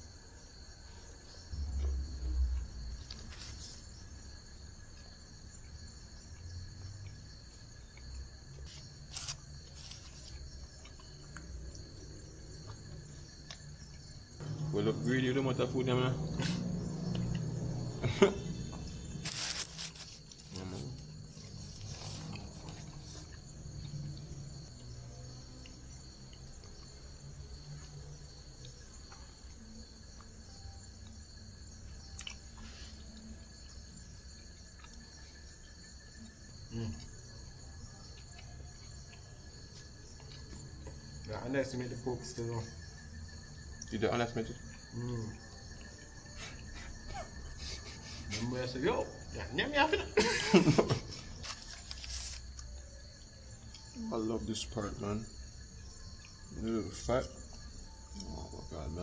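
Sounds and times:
night insects trilling: 0.0 - 59.0
paper crackling: 19.1 - 20.6, 51.4 - 52.5.

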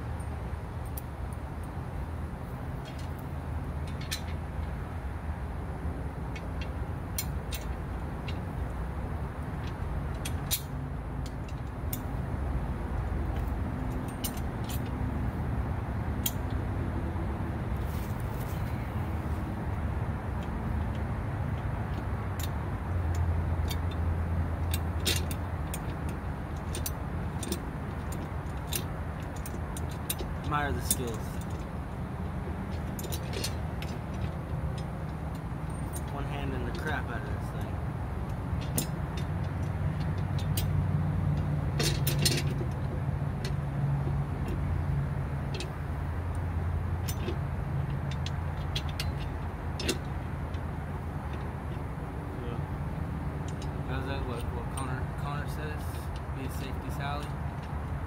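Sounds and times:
steady low hum: 0.0 - 58.0
steady low rumble: 0.0 - 58.0
hand tools clinking on metal: 26.6 - 31.6.

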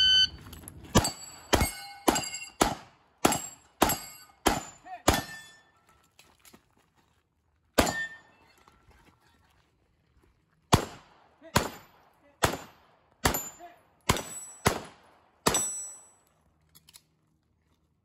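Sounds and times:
shot timer beep: 0.0 - 0.4
steel targets ringing: 1.0 - 2.7, 3.3 - 5.9, 7.8 - 8.4, 15.5 - 16.2
pistol shots: 1.0 - 5.5, 10.7 - 16.0.

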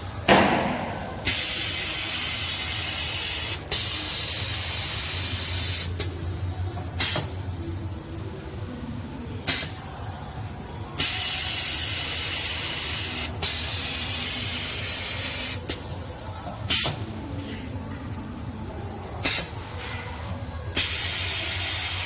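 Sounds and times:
compressed air hiss: 1.2 - 6.0, 7.0 - 7.4, 9.5 - 9.8, 11.0 - 15.6, 16.7 - 17.0, 19.2 - 19.7, 20.8 - 22.0.

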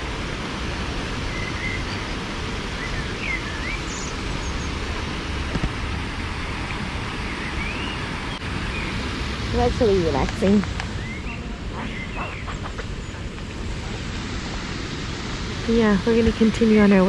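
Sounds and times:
water rushing over weir: 0.0 - 17.0
bird chirps: 2.8 - 4.8, 7.2 - 9.0, 10.8 - 13.2.

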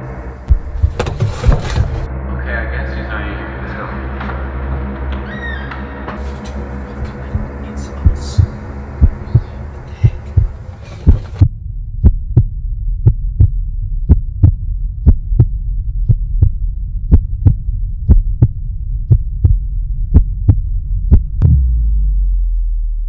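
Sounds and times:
steady low hum: 0.0 - 5.2, 5.8 - 23.0
heartbeat thumps: 0.4 - 2.0, 7.0 - 22.3.

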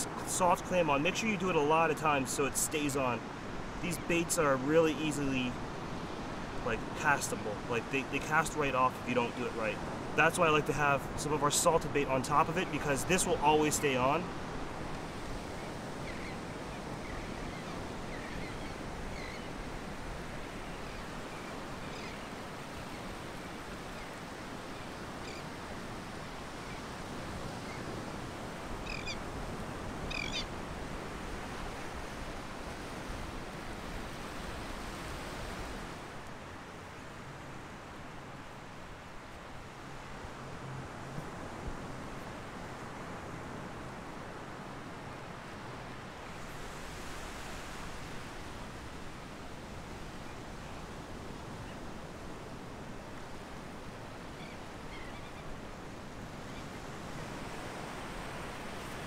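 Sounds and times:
breaking surf: 0.0 - 15.3
surf: 0.0 - 59.0
wind: 0.0 - 59.0
bird calls: 15.4 - 19.7, 20.4 - 23.2, 23.9 - 25.6, 28.8 - 29.3, 30.0 - 30.6, 54.3 - 55.6.

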